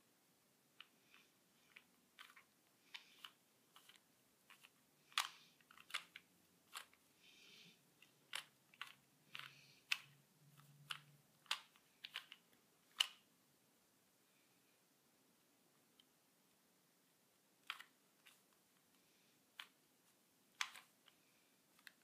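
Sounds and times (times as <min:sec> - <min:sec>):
puzzle cube plastic clicks: 0:00.7 - 0:07.1, 0:07.9 - 0:13.3, 0:17.6 - 0:19.9, 0:20.5 - 0:22.0.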